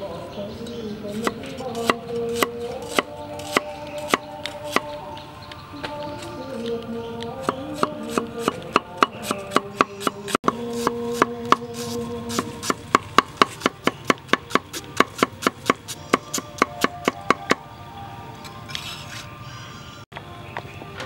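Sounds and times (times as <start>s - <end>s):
cleaver chopping on wooden board: 1.2s - 4.9s, 7.4s - 17.6s.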